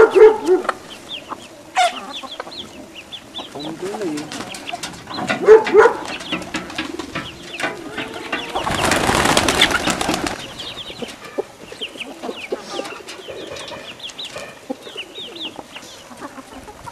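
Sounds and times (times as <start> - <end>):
birds wings flapping: 3.9 - 11.2.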